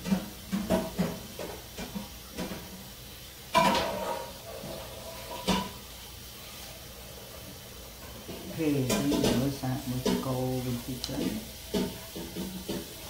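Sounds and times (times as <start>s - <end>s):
cookware and utensils knocking: 0.0s - 2.6s, 3.5s - 4.4s, 5.2s - 5.8s, 8.3s - 13.0s.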